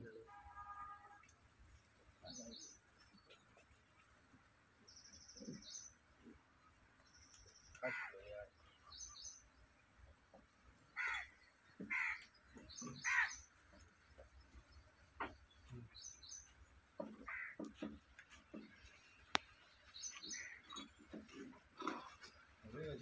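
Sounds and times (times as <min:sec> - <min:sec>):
small bird chirping: 0:04.8 - 0:17.0, 0:17.7 - 0:23.0
crow cawing: 0:07.8 - 0:08.3, 0:11.0 - 0:12.3, 0:12.9 - 0:13.4, 0:17.0 - 0:17.7.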